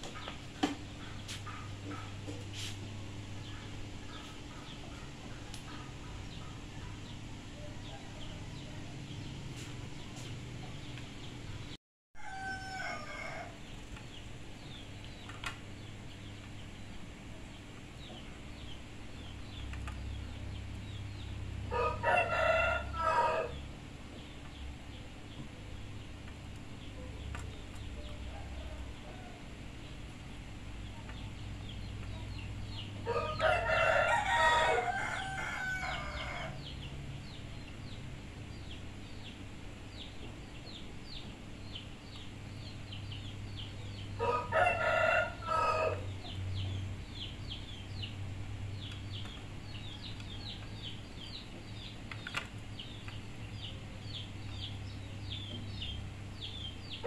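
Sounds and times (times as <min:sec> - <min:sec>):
rooster crowing: 0:12.2 - 0:13.6, 0:21.7 - 0:23.6, 0:33.0 - 0:36.7, 0:44.2 - 0:46.2.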